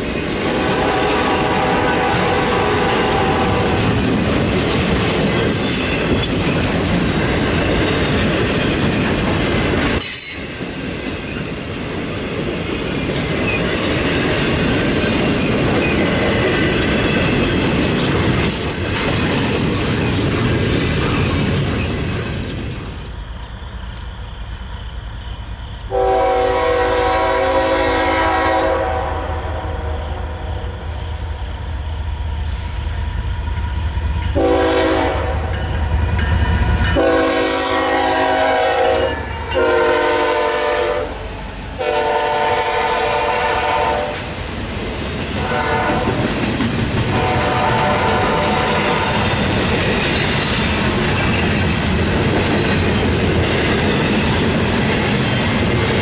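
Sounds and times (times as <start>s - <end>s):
locomotive horn blasts: 0.4s - 3.8s, 25.9s - 30.1s, 34.4s - 35.6s, 37.0s - 41.2s, 41.8s - 44.3s, 45.4s - 46.2s, 47.1s - 49.2s.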